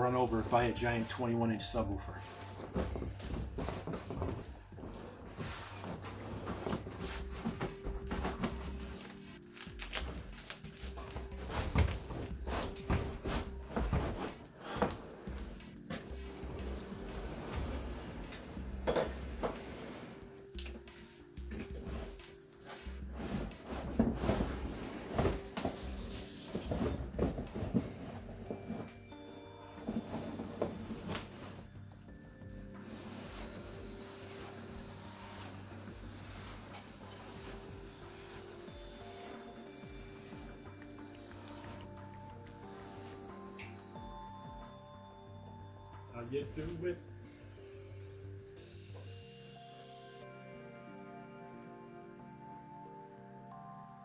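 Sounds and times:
cardboard rustling: 0.0s - 43.8s
heavy box bumping down stairs: 23.4s - 28.8s.

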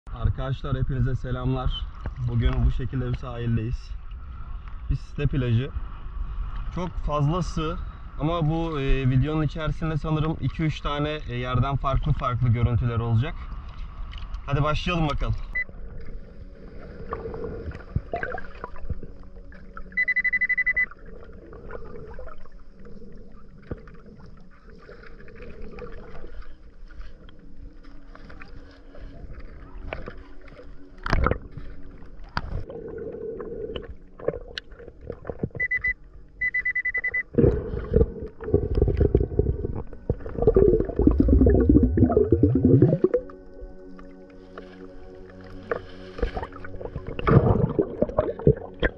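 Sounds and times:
metal detector beeping: 19.9s - 21.0s, 35.5s - 37.3s
muffled underwater noise: 36.6s - 43.2s.

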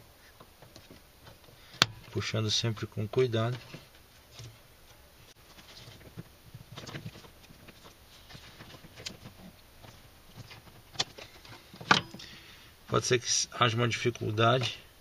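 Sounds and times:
plastic rubbing and scraping: 3.4s - 11.8s.

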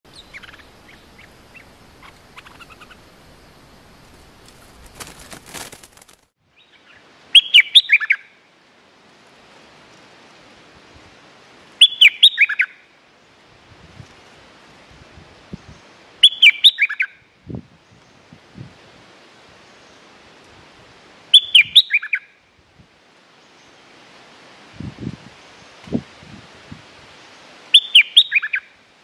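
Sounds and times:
faint bird chirps: 0.1s - 5.4s
brief rustle: 4.4s - 6.3s.

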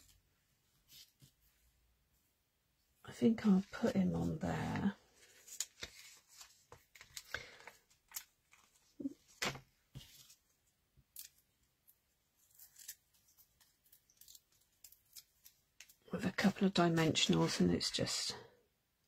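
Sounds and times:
paper clicks and rustles: 5.2s - 10.4s.

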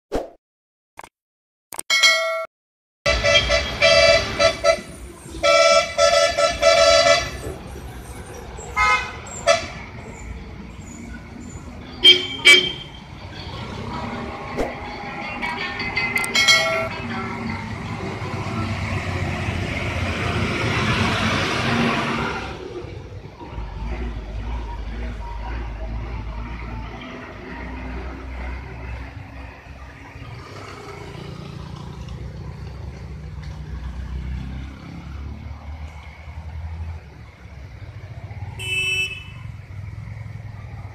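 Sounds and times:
vehicle horns tooting: 3.1s - 7.4s, 8.8s - 10.0s, 12.0s - 13.2s, 16.2s - 16.9s, 38.6s - 39.6s
heavy vehicle engine rumbling: 3.1s - 30.4s
motorcycle passing: 27.6s - 40.9s.

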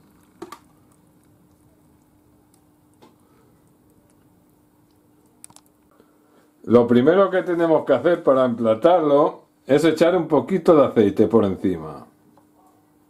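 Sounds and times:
thick liquid pouring into bowl: 0.0s - 5.8s
faint steady hum: 0.0s - 13.0s.

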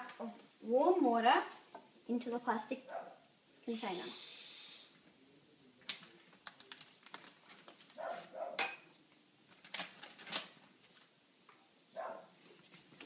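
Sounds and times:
plastic cup and bag crinkling: 5.8s - 8.0s.

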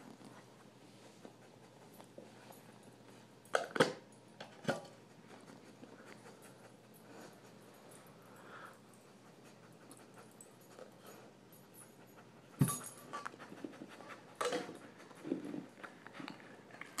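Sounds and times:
dog breathing and sniffing: 0.0s - 3.1s, 4.7s - 17.0s.

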